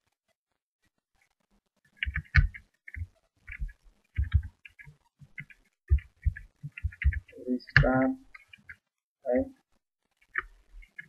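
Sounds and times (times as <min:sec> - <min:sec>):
computer keyboard typing: 0:02.0 - 0:08.8.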